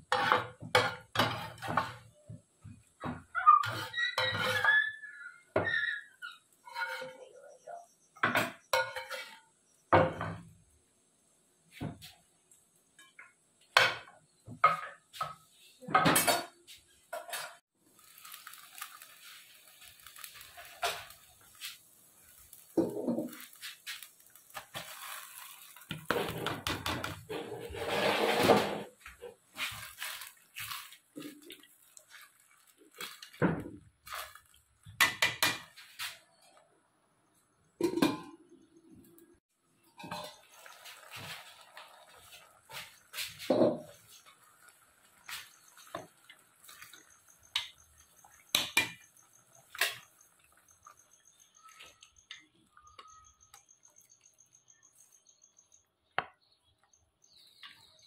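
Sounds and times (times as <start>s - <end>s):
pots and dishes clinking: 0.0s - 2.3s, 8.2s - 10.5s, 13.0s - 17.6s, 37.8s - 38.5s, 39.9s - 44.6s, 45.2s - 53.6s.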